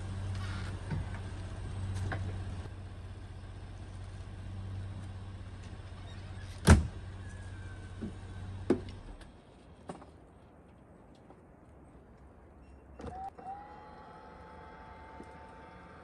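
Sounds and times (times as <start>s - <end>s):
van door slamming: 6.6s - 7.0s.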